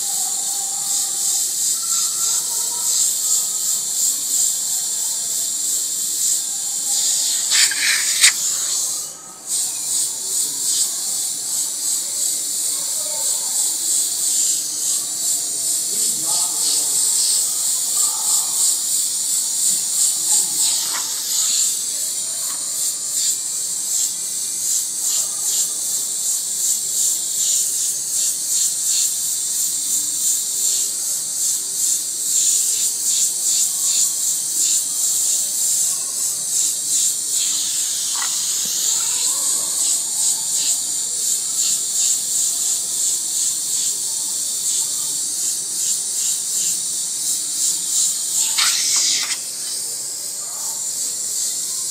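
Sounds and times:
airbrush hissing: 1.0 - 12.6, 13.6 - 51.9.

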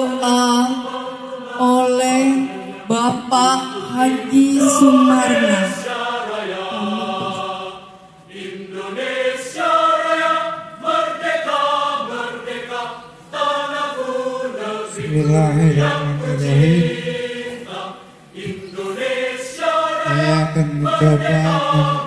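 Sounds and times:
voices singing together: 0.0 - 22.0
low male voice holding a note: 15.0 - 17.0, 20.1 - 22.0.

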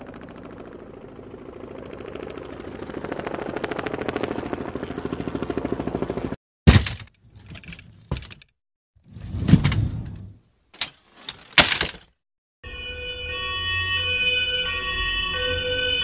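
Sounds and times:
helicopter rotor blades chopping: 0.0 - 6.4
knocks and rattles: 6.7 - 8.5.

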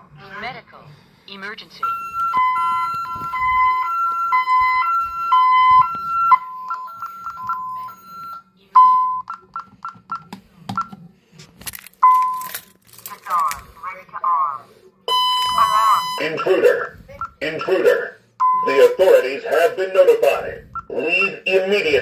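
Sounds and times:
hi-lo two-tone alarm beep: 1.8 - 9.7, 15.1 - 17.8, 18.4 - 18.8
long single beeps: 1.8 - 9.7, 15.1 - 16.6, 18.4 - 18.8
keypad key-press beeps: 5.7 - 11.0.

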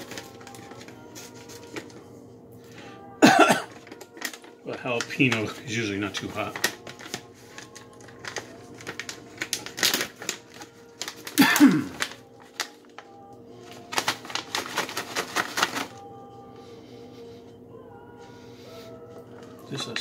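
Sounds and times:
plastic bag crackling: 0.0 - 2.0, 3.6 - 16.2.

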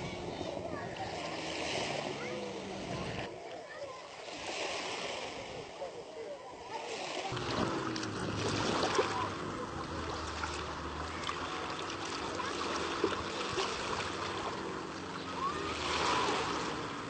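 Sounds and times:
small waves splashing: 0.0 - 17.0.

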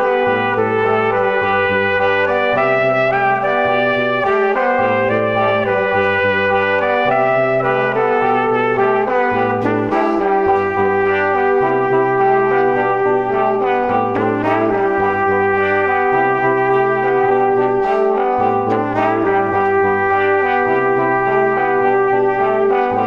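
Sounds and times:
music with held notes and bass: 0.0 - 23.0.

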